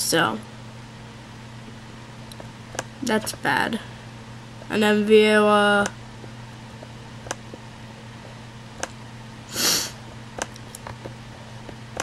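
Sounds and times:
low steady hum: 0.0 - 12.0
person sniffing: 9.5 - 10.0.

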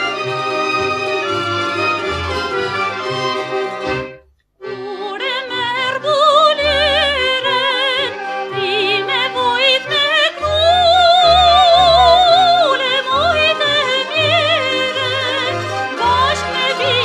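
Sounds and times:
musical accompaniment: 0.0 - 17.0
operatic singing: 4.6 - 17.0.

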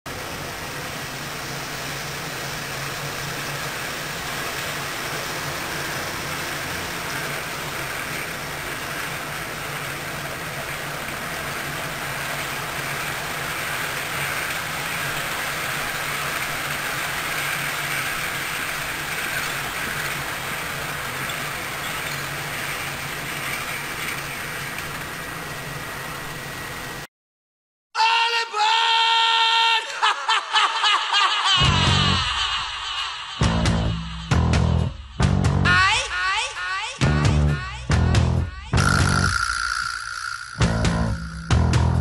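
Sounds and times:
model train wheels rumbling on rails: 0.1 - 27.1
motor hum: 38.8 - 42.0.

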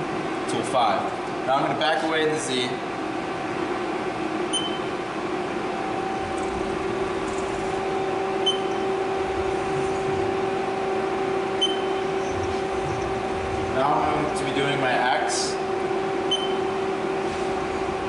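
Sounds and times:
lathe humming: 5.0 - 18.0.

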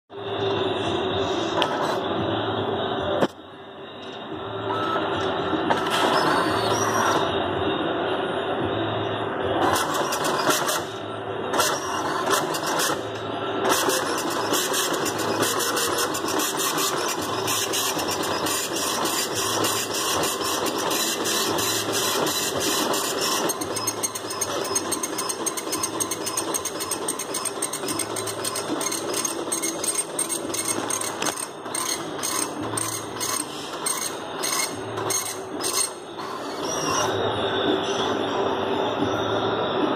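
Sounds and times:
dot-matrix printer rattling: 9.7 - 10.9, 11.6 - 13.1, 13.7 - 36.7.

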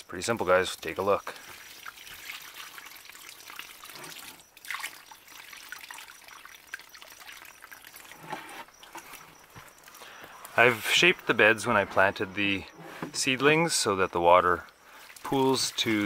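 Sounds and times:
water pouring onto soil: 0.3 - 8.4, 14.4 - 16.0.

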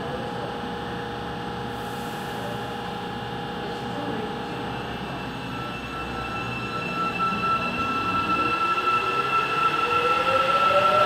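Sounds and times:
steady high tone: 3.6 - 11.0
train motor whine rising: 4.9 - 11.0.

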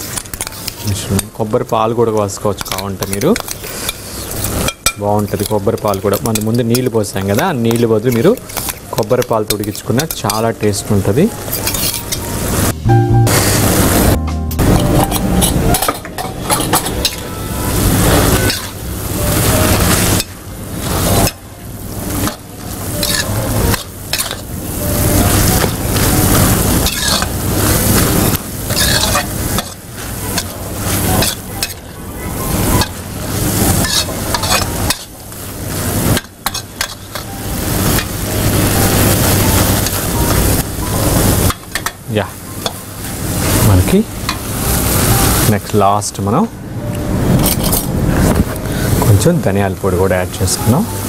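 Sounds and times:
curry sizzling: 0.0 - 51.0
spoon scraping a metal pan: 11.5 - 12.3, 22.2 - 24.4, 26.8 - 27.7, 28.7 - 31.8, 33.6 - 35.2, 36.1 - 37.4.

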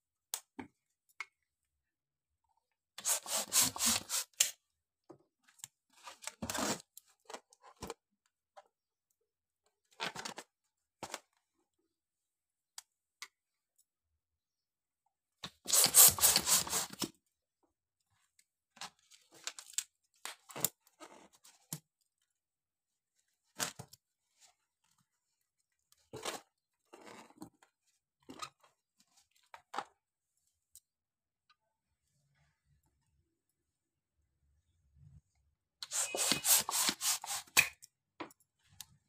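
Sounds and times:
rubber balloon rustling: 3.0 - 4.5, 15.6 - 17.0, 35.8 - 37.6
rubber rubs and crinkles: 3.0 - 4.5, 15.6 - 17.1, 35.9 - 37.6.

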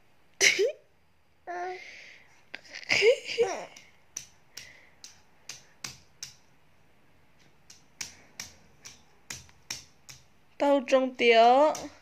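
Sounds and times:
hand slapping a glossy poster: 3.0 - 6.6, 7.3 - 10.4, 11.1 - 12.0.

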